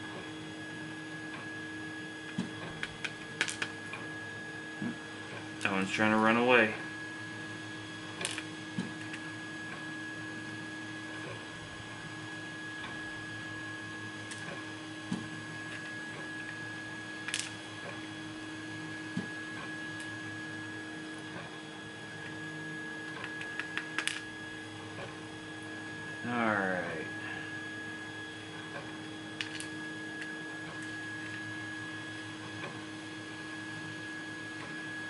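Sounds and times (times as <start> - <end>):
electrical hum: 0.0 - 35.0
small metal parts clicking: 17.3 - 17.5, 23.2 - 24.2, 29.4 - 29.7.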